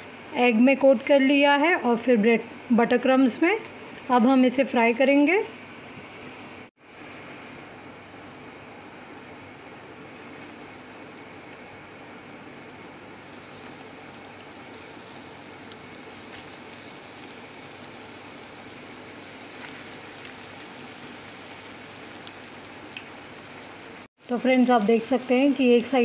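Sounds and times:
hot oil sizzling and crackling: 0:10.1 - 0:24.1.

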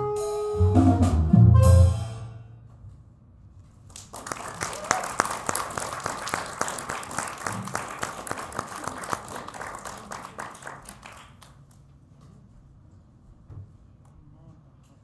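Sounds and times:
small audience applauding: 0:03.9 - 0:11.9.

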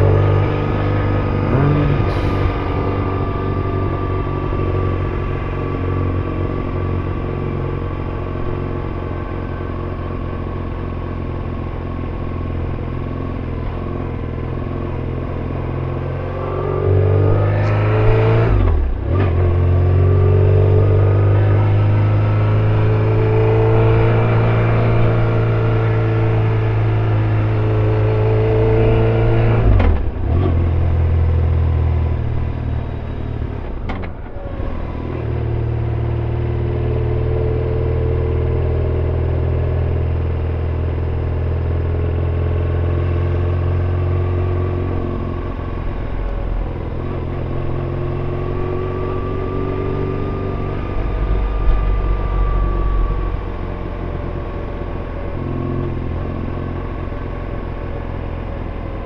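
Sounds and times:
motorcycle engine running: 0:30.0 - 0:59.0.

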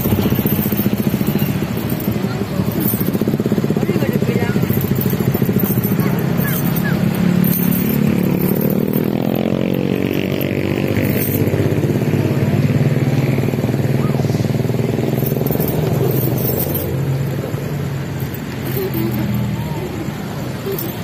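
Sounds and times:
motorcycle engine: 0:00.0 - 0:21.0
truck engine: 0:00.0 - 0:21.0.

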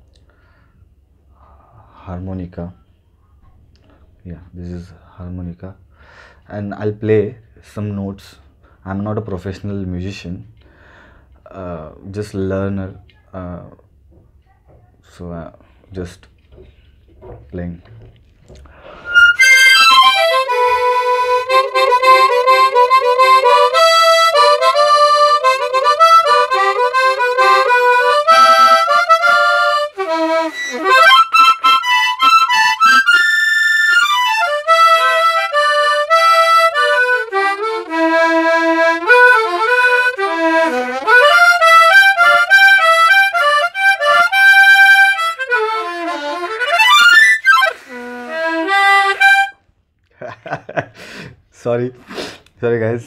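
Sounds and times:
harmonica playing melody: 0:18.8 - 0:49.6.

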